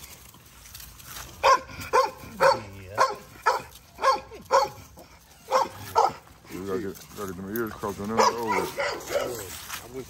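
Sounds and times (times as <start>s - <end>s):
puppy barking: 1.4s - 6.3s, 8.0s - 9.5s.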